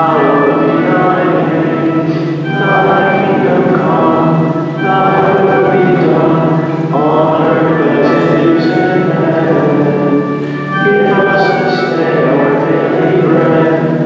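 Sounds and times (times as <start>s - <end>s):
liturgical chant singing: 0.0s - 14.0s
low steady accompaniment: 0.0s - 14.0s.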